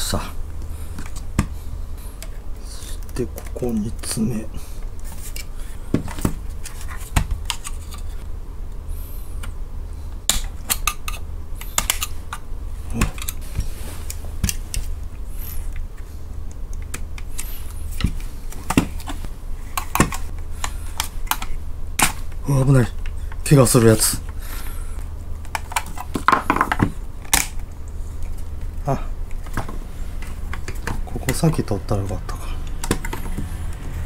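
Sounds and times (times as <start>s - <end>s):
steady low rumble: 0.0s - 25.8s.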